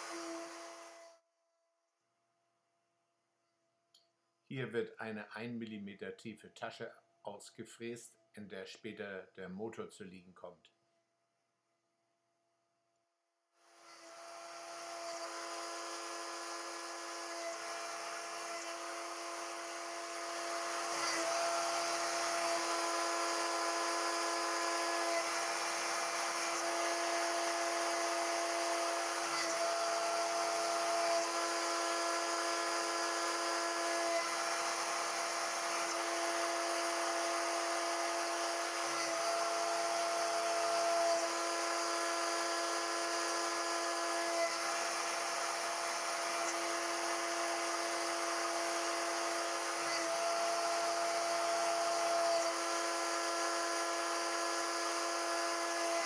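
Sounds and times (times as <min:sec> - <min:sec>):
router spindle whining: 0:00.0 - 0:01.2, 0:13.6 - 0:56.0.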